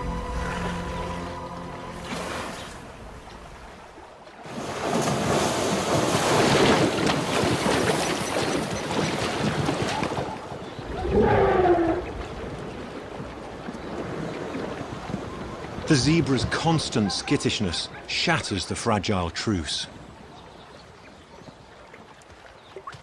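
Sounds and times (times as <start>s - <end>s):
animals splashing through water: 1.9s - 18.1s.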